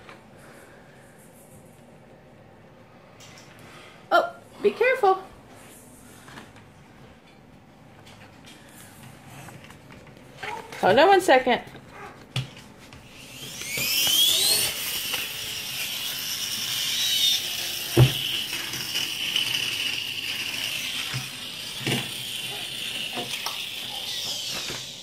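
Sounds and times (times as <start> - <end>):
toy electric motor whining: 13.0 - 25.0.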